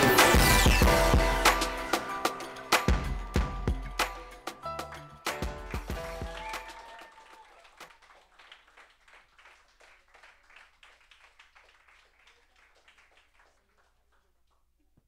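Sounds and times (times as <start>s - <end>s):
small audience clapping: 4.0s - 15.0s.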